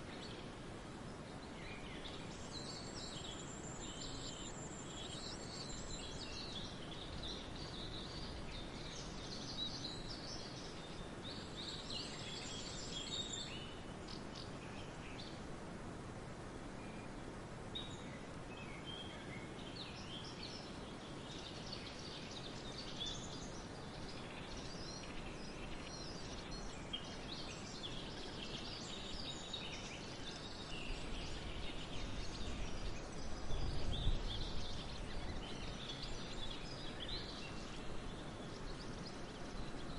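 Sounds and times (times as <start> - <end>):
wind rushing through field: 0.0 - 39.9
wind rumbling on microphone: 4.7 - 39.9
swallows chirping: 17.8 - 39.9.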